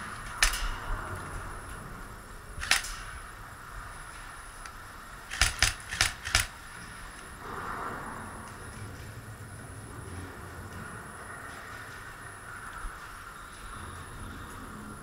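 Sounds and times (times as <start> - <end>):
airsoft gun shots: 0.2 - 0.9, 2.6 - 3.2, 5.3 - 6.6.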